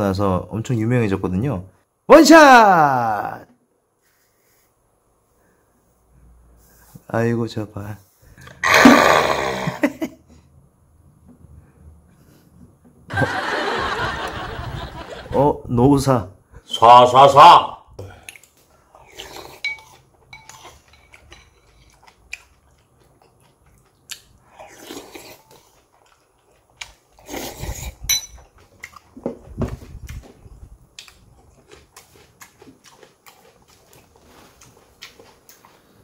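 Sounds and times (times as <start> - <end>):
person chewing and crunching: 18.2 - 29.2, 30.0 - 36.0
utensils clinking on dish: 19.6 - 21.8, 28.1 - 28.5.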